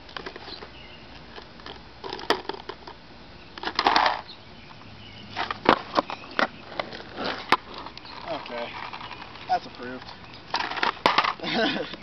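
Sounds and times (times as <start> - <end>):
skateboard clattering on asphalt: 1.3 - 3.0, 3.6 - 4.3, 5.3 - 12.0
skateboard scrape: 3.6 - 4.3, 5.3 - 9.4, 10.5 - 11.6.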